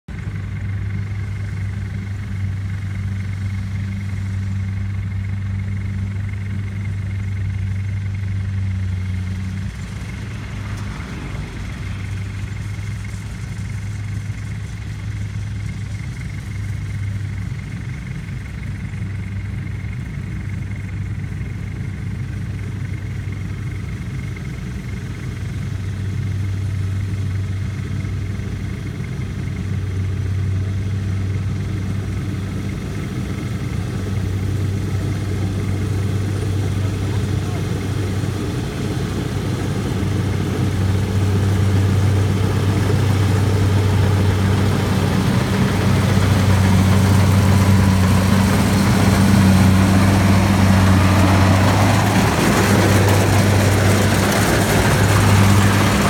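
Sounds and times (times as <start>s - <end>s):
diesel engine drone: 0.0s - 56.0s.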